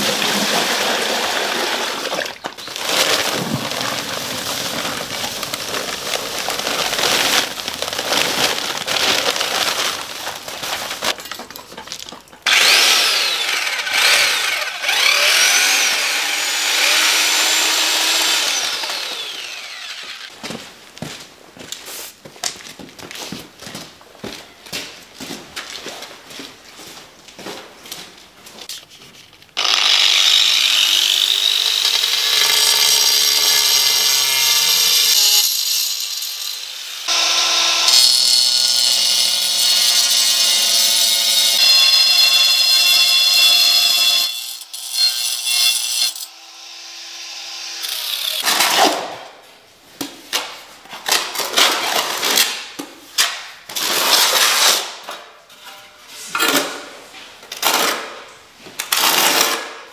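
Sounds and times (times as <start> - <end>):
angle grinder cutting tile: 12.4 - 20.3, 29.6 - 49.1.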